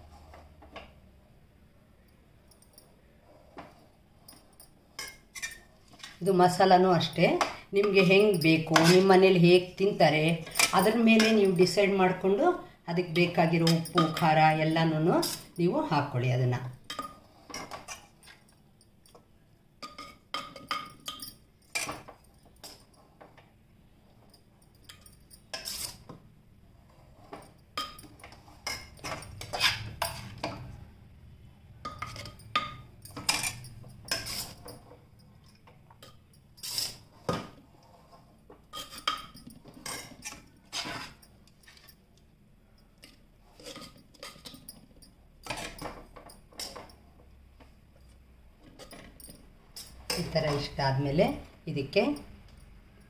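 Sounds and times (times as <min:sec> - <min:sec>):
steel spoon scraping earthenware pot: 0:04.9 - 0:06.3, 0:07.8 - 0:09.4, 0:24.9 - 0:26.1, 0:26.8 - 0:30.8, 0:31.8 - 0:34.9, 0:36.0 - 0:42.0.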